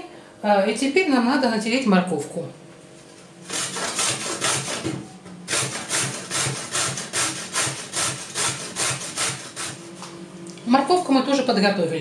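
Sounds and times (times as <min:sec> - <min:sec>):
carrot grated on metal grater: 0:03.5 - 0:04.9, 0:05.5 - 0:09.8.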